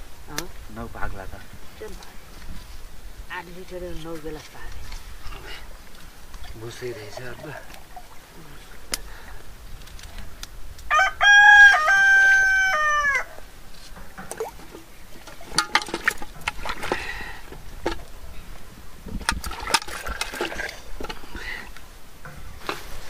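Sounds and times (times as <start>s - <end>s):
rooster crowing: 10.9s - 13.5s.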